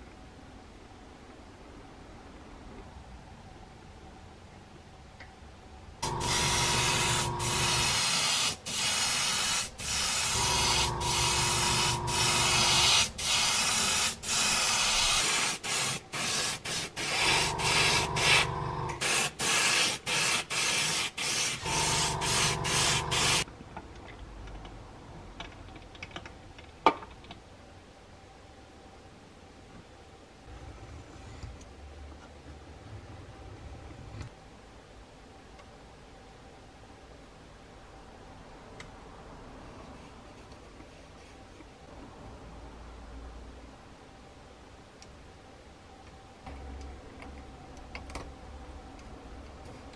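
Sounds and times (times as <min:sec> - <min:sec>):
steady hum: 0:05.7 - 0:14.8, 0:16.7 - 0:19.4, 0:21.6 - 0:23.5
airbrush spraying hiss: 0:06.0 - 0:23.5.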